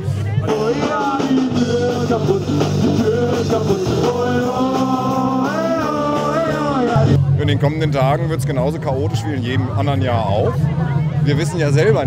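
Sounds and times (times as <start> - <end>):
rock song with singing: 0.0 - 8.2
steady bass line: 0.0 - 12.0.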